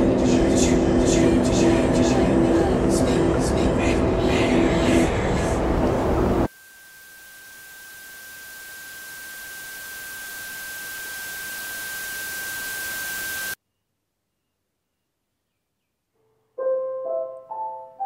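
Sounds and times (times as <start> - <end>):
steady high tone: 0.8 - 13.6
static-like hiss: 7.2 - 13.6.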